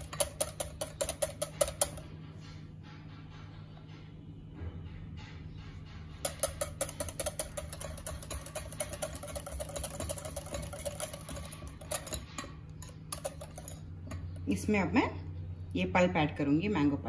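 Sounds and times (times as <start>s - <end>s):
whisk beating cream in glass bowl: 0.0s - 2.1s, 6.2s - 14.4s.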